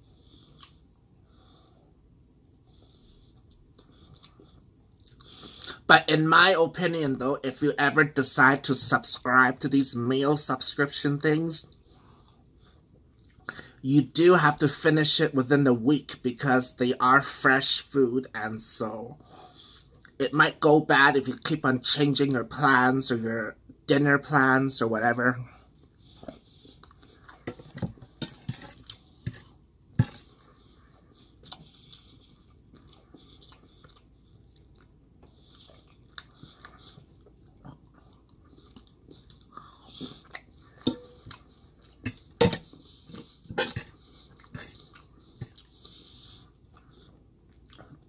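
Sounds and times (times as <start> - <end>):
person chewing rice: 0.0 - 1.8, 2.7 - 5.8, 19.2 - 20.2, 25.6 - 48.0
fork clinking on metal bowl: 40.9 - 41.2.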